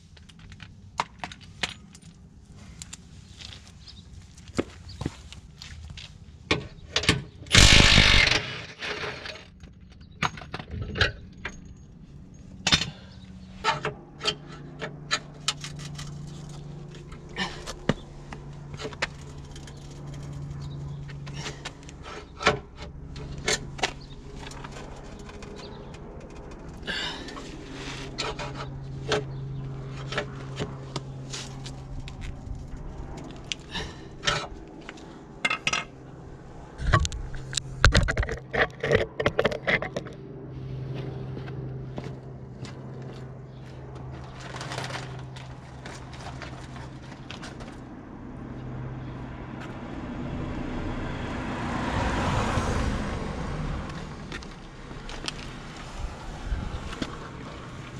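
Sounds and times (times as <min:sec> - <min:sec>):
metal tools clinking: 0:07.0 - 0:17.5
impact wrench hammering: 0:07.5 - 0:09.0.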